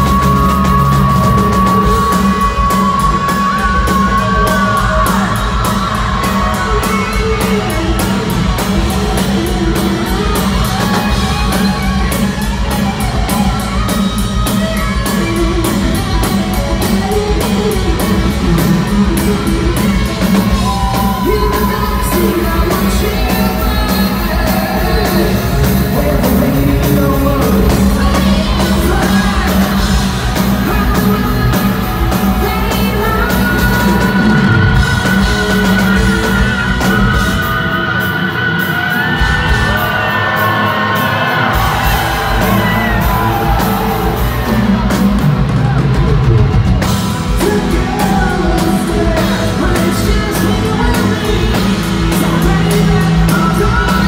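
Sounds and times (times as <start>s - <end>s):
man singing high vocals: 0.0s - 12.0s, 16.6s - 44.5s, 47.3s - 54.0s
electric guitars: 0.0s - 54.0s
hard rock band playing: 0.0s - 54.0s
pounding drums: 38.6s - 54.0s.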